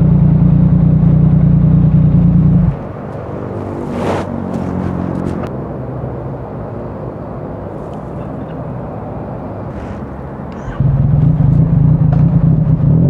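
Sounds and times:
exhaust crackles: 0.0s - 5.5s, 9.7s - 13.0s
motorcycle engine off throttle: 0.0s - 5.5s, 10.6s - 13.0s
wind noise: 2.7s - 5.5s
rush of noise: 2.7s - 8.2s.

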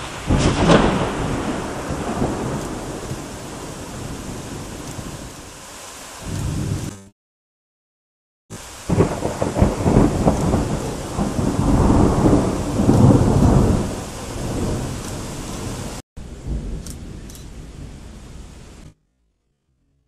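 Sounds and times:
thunder cracks: 0.0s - 5.4s, 8.8s - 19.0s
thunder rumbling: 0.0s - 5.5s, 6.1s - 7.1s, 8.5s - 19.0s
steady rain: 0.0s - 7.1s, 8.5s - 19.0s.

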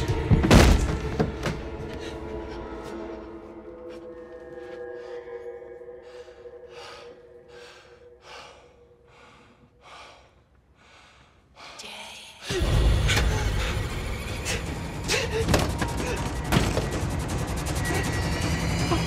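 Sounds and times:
low music drone: 0.0s - 9.8s, 12.5s - 19.0s
man panting heavily: 6.0s - 11.9s.

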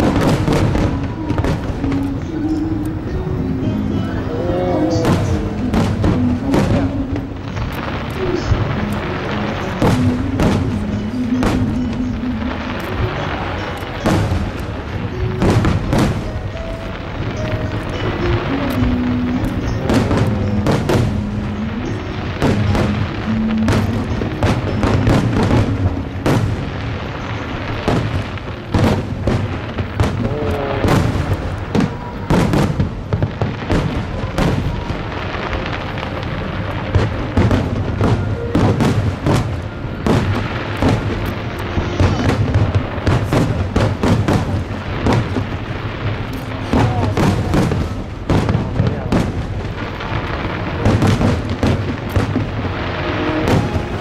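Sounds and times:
fireworks booming and crackling: 0.0s - 54.0s
music playing: 0.0s - 54.0s.

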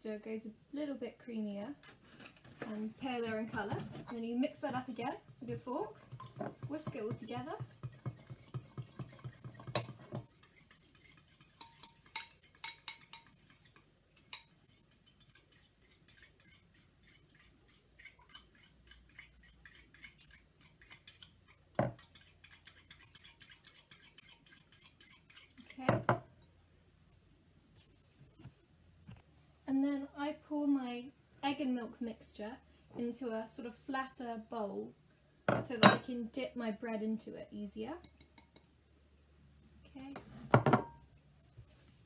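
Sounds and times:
fork whisking in ceramic bowl: 4.5s - 25.8s
fork knocking on bowl: 4.7s - 10.4s.

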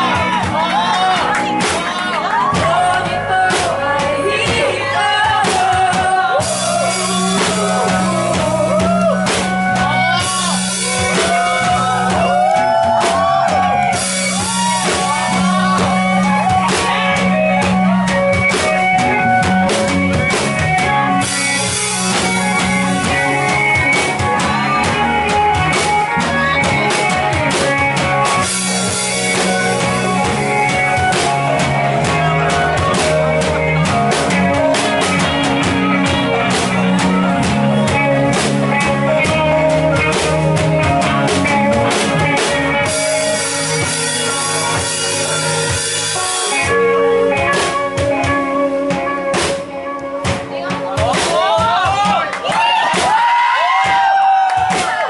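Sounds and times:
live band playing: 0.0s - 55.0s
woman singing: 0.3s - 9.0s.

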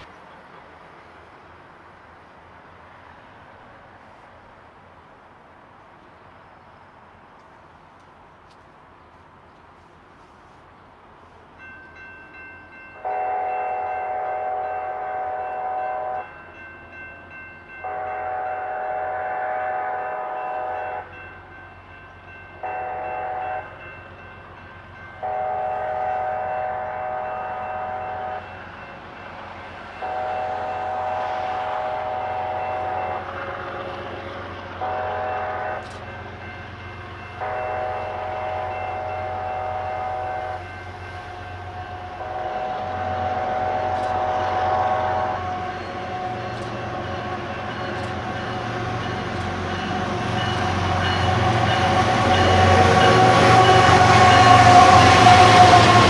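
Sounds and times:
low rumble of train: 0.0s - 56.0s
train air horn blowing: 13.0s - 16.3s, 17.8s - 21.2s, 22.6s - 23.8s, 25.2s - 28.6s, 30.0s - 36.1s, 37.4s - 49.0s, 50.6s - 56.0s.

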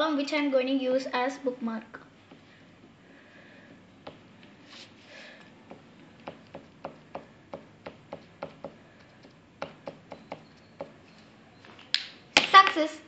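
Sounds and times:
marker tapping on paper: 3.6s - 4.3s, 5.6s - 11.0s.

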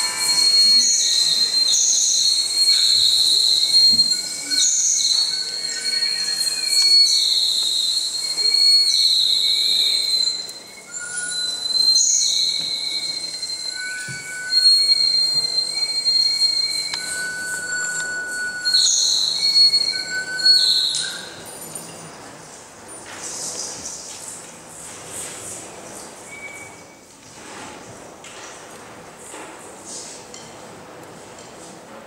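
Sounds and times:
shrill whistle tones: 0.0s - 22.0s, 26.2s - 27.1s.

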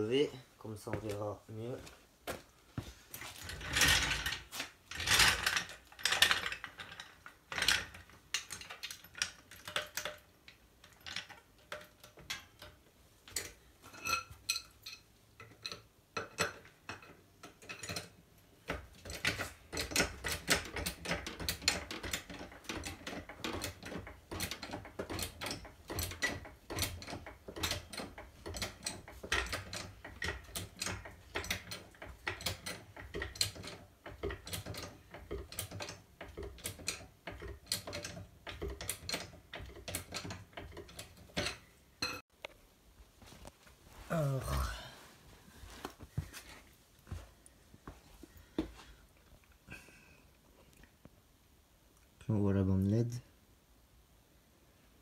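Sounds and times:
floor jack pumping clicking: 17.5s - 41.7s.

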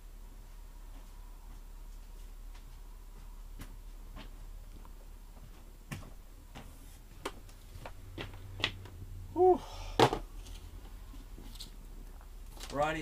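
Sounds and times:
low steady hum: 0.0s - 13.0s
brief voice-like sound: 9.3s - 9.9s.

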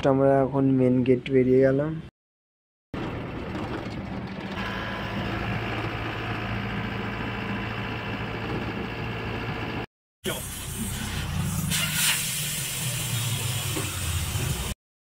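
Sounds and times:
vehicle engine running: 3.0s - 9.9s.

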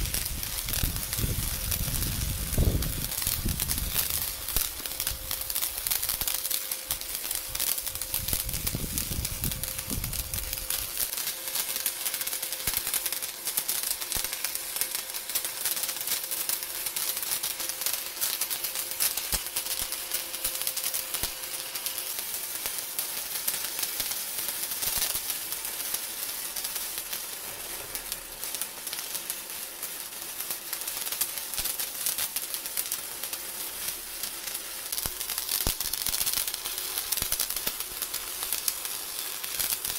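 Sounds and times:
welding arc crackling: 0.0s - 39.9s.

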